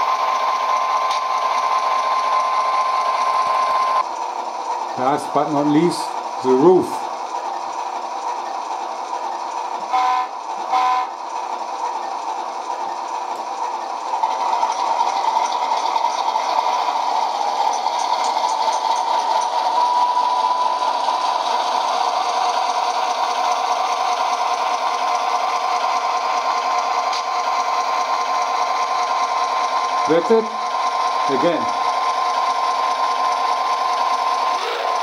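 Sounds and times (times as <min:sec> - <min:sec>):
model locomotive engine drone: 0:00.0 - 0:35.0.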